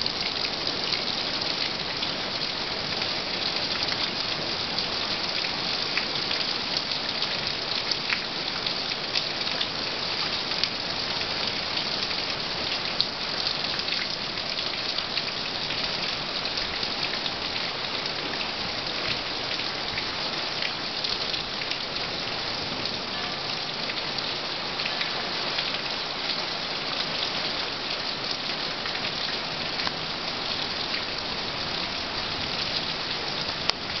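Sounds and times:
heavy rain falling: 0.0s - 34.0s.

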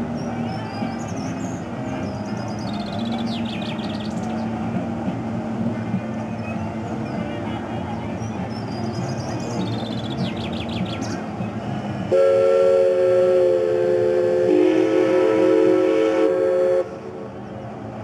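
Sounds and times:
birds chirping: 0.0s - 4.7s, 6.0s - 12.1s
steam whistle chord blast: 12.1s - 17.0s.

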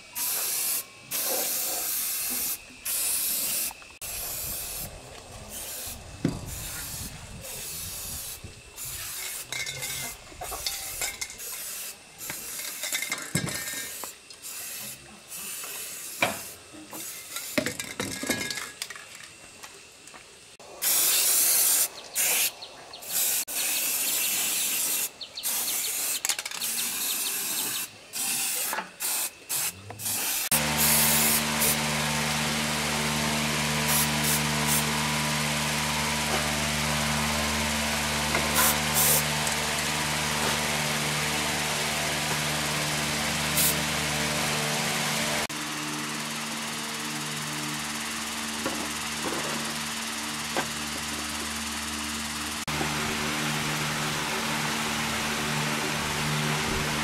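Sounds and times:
hissing spray bursts: 0.0s - 13.0s, 13.6s - 17.8s, 20.6s - 45.6s
steady machine hum: 2.2s - 9.0s, 30.4s - 57.0s.

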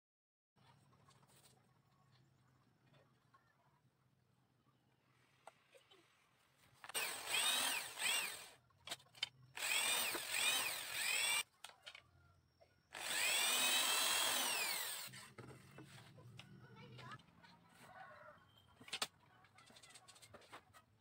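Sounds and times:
electric drill whine: 6.9s - 8.6s, 9.5s - 11.4s, 12.9s - 15.2s.

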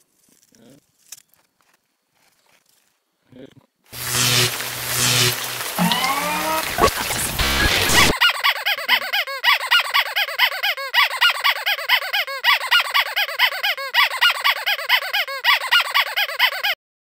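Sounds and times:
squeaky toy squeaking: 8.2s - 16.8s.

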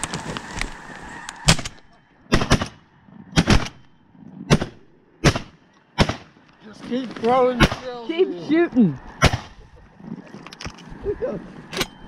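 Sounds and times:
geese calling: 0.0s - 2.3s
shotguns firing: 1.4s - 3.9s, 4.5s - 6.4s, 7.5s - 7.9s.

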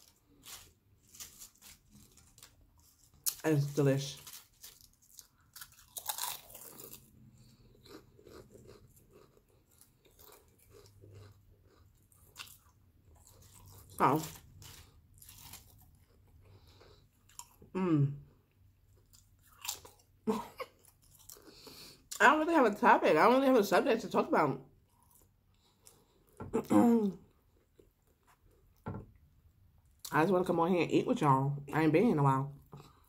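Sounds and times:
potato chips crunching: 0.0s - 17.7s, 18.9s - 21.7s.

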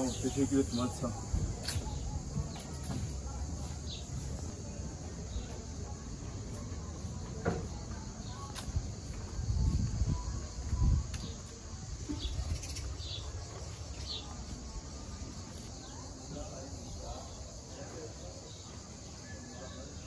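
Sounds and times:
small bird chirping: 9.6s - 14.4s.

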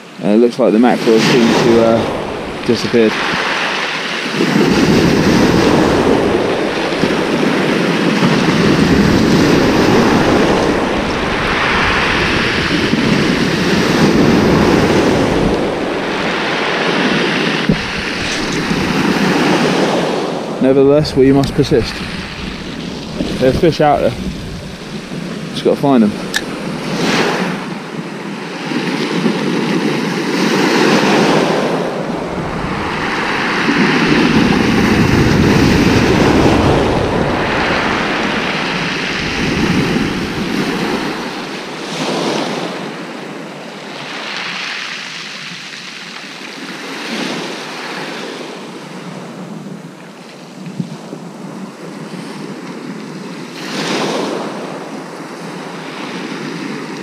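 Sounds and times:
surf breaking on shingle beach: 0.8s - 48.5s
wind buffeting microphone: 0.9s - 43.3s.

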